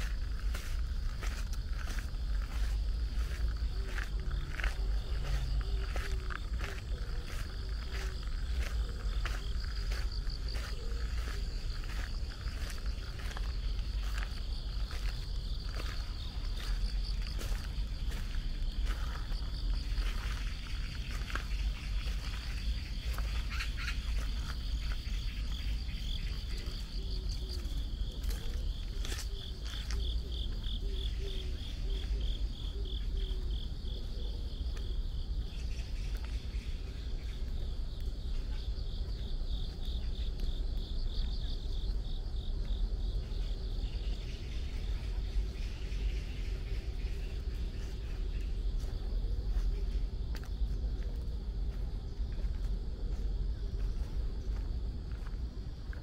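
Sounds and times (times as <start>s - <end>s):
constant low rumble: 0.0s - 56.0s
crickets chirping: 0.0s - 56.0s.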